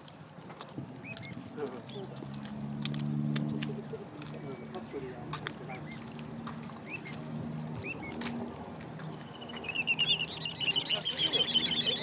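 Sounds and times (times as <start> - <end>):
plover high chirps: 6.8 - 7.2, 7.8 - 8.2, 9.2 - 12.0.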